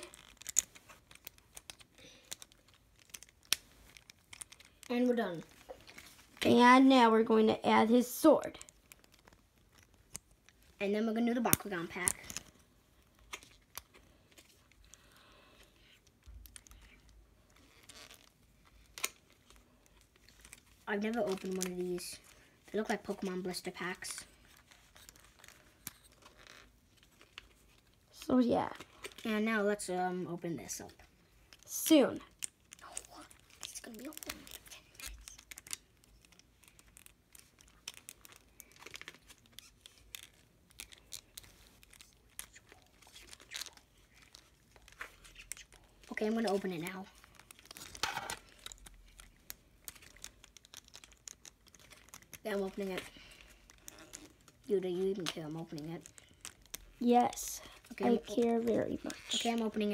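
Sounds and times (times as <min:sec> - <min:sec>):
plastic toy parts clicking: 0:00.0 - 0:04.9, 0:32.4 - 0:59.6
packaging crinkling: 0:00.0 - 0:06.4, 0:08.4 - 0:10.8, 0:11.4 - 0:28.2, 0:31.4 - 0:59.9.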